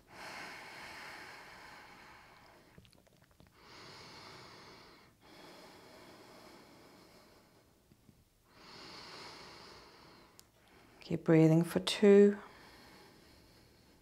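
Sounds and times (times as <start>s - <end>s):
person breathing deeply: 0.0s - 2.8s, 3.6s - 7.8s, 8.5s - 11.0s, 12.4s - 14.0s.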